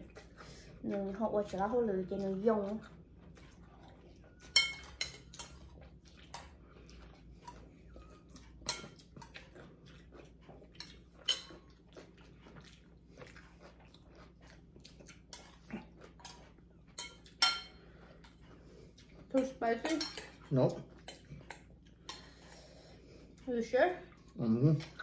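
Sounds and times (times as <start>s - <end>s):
people chewing: 0.0s - 25.0s
utensils clinking on ceramic bowls: 4.3s - 6.5s, 10.8s - 11.6s, 16.3s - 17.8s, 19.4s - 22.3s.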